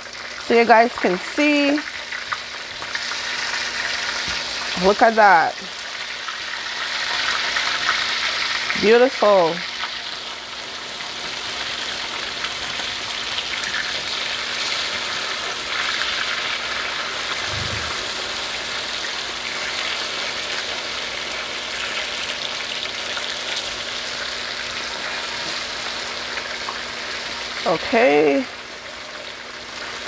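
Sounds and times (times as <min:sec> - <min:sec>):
meat sizzling in hot oil: 0:00.0 - 0:30.0
soft low thump: 0:17.5 - 0:18.2.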